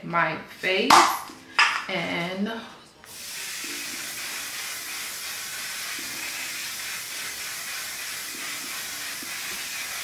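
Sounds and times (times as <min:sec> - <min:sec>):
spray can hissing: 0:03.1 - 0:10.0.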